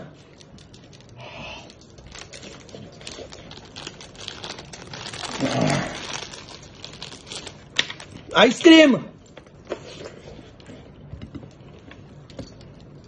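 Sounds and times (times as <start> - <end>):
plastic wrapper crinkling: 0.2 - 8.4.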